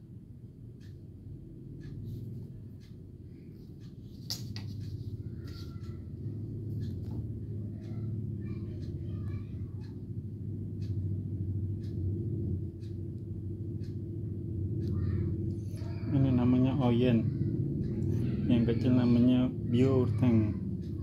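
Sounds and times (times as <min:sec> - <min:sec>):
steady low hum: 0:00.0 - 0:21.0
faint clicks and taps: 0:01.8 - 0:14.1.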